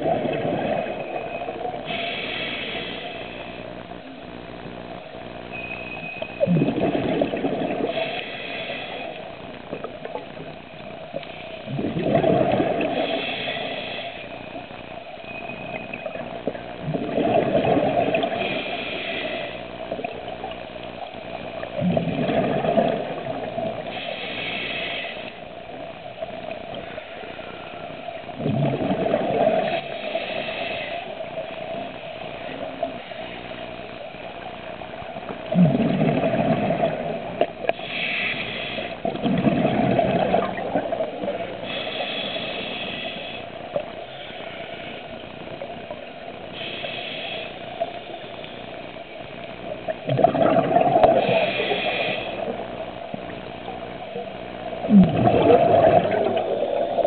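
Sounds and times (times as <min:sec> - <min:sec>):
exhaled bubbles rushing: 0:00.0 - 0:01.8, 0:06.4 - 0:08.0, 0:11.6 - 0:13.2, 0:16.0 - 0:18.5, 0:21.6 - 0:23.9, 0:28.4 - 0:30.0, 0:35.4 - 0:37.5, 0:39.0 - 0:41.6, 0:49.7 - 0:51.6, 0:54.8 - 0:57.0
regulator inhale hiss: 0:01.2 - 0:04.2, 0:07.8 - 0:10.2, 0:12.8 - 0:16.2, 0:18.1 - 0:21.1, 0:23.2 - 0:28.2, 0:29.6 - 0:34.5, 0:37.2 - 0:39.2, 0:40.4 - 0:49.1, 0:51.0 - 0:54.2.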